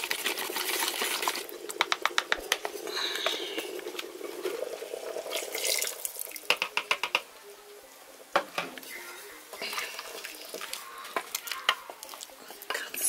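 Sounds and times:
liquid pouring into saucepan: 0.0 - 6.6, 9.7 - 11.5.

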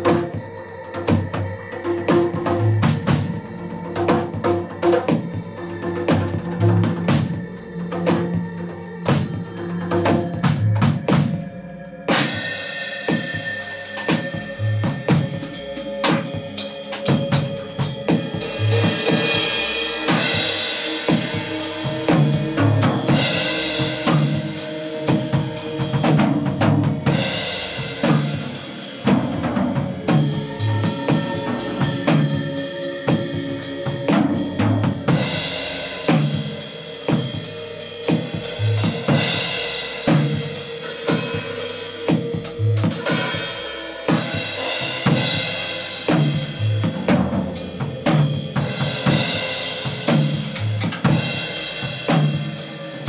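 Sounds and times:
crash and ride cymbals: 10.1 - 53.0
bass drum beats: 13.1 - 40.6, 41.3 - 53.0.

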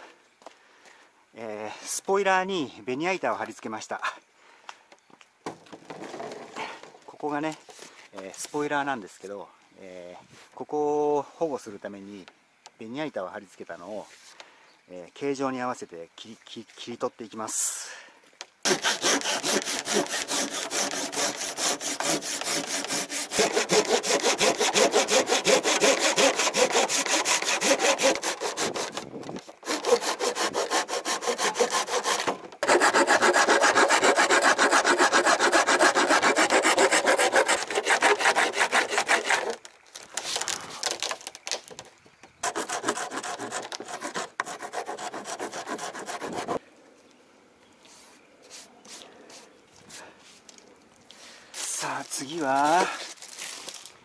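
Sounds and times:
hand saw cutting plywood: 18.6 - 29.0, 29.6 - 39.7, 42.4 - 46.6
file rasping wood edge: 18.7 - 29.0, 29.6 - 39.6, 42.4 - 46.6.

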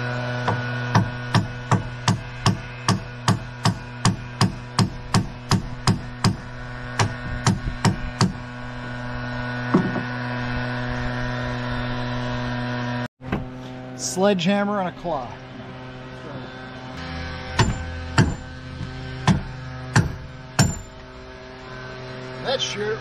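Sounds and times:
steady hum: 0.0 - 23.0
sledgehammer striking metal bar: 0.4 - 8.4, 17.4 - 21.0.

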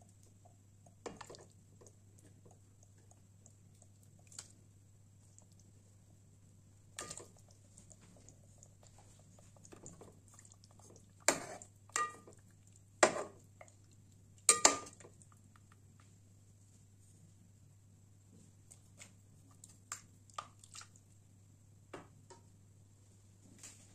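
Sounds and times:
steel cup clinking on pot: 14.5 - 15.0.

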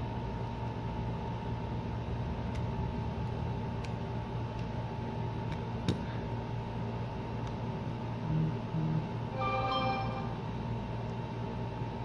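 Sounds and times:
steady low hum: 0.0 - 12.0
thin high steady tone: 9.3 - 10.7.

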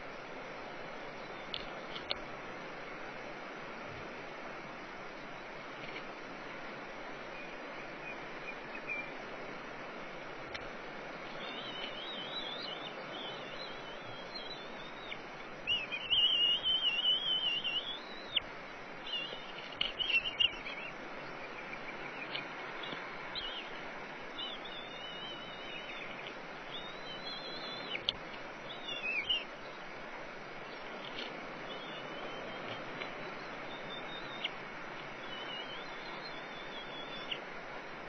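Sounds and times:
background hiss: 0.0 - 38.0
bird trilling: 11.4 - 18.4.

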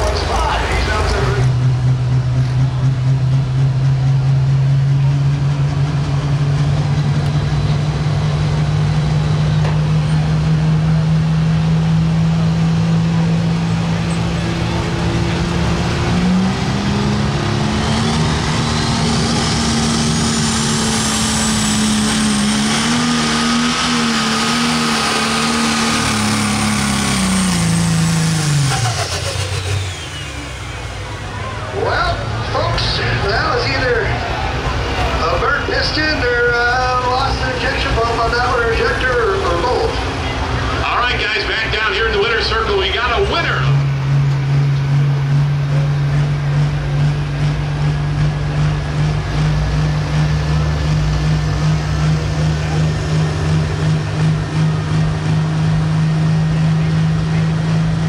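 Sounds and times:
diesel engine running hard: 0.0 - 58.0.

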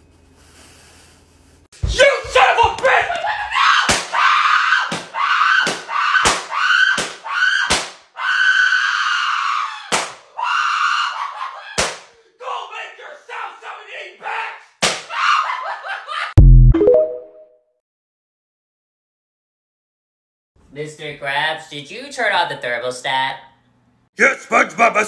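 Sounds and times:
sharp smacks: 3.9 - 4.1, 4.9 - 8.0, 9.9 - 10.2, 11.8 - 12.1, 14.8 - 15.1.

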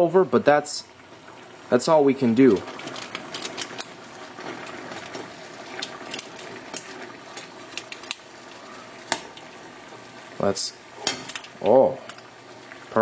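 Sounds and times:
water boiling in a frying pan: 0.0 - 13.0.

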